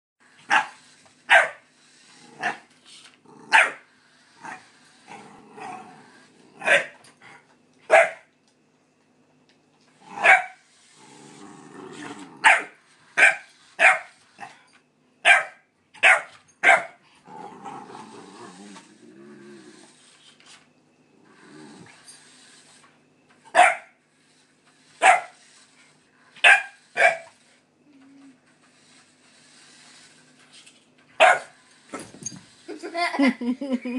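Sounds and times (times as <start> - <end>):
puppy barking: 0.5 - 0.7, 1.3 - 1.6, 3.5 - 3.8, 6.6 - 7.0, 7.9 - 8.2, 10.2 - 10.6, 12.4 - 14.1, 15.2 - 17.0, 23.5 - 23.9, 25.0 - 25.4, 26.4 - 27.3, 31.2 - 31.5.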